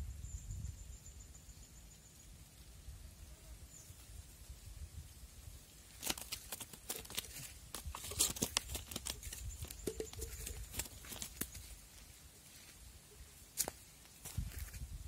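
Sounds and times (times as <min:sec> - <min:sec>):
crackling and rustling: 0:05.8 - 0:12.8.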